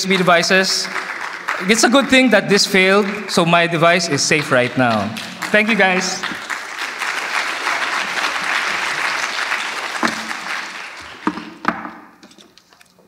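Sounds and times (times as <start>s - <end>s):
audience applauding: 0.0s - 11.9s
sharp knocks: 10.0s - 10.5s.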